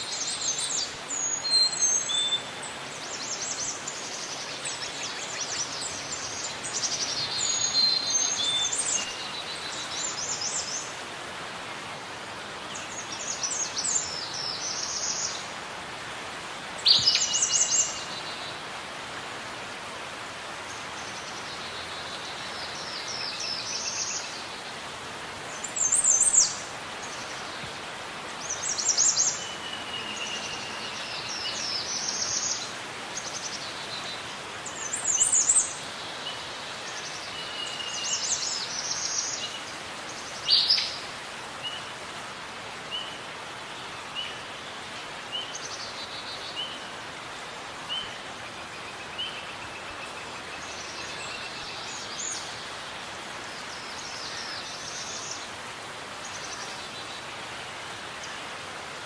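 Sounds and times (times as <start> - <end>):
steady background hiss: 0.0 - 59.0.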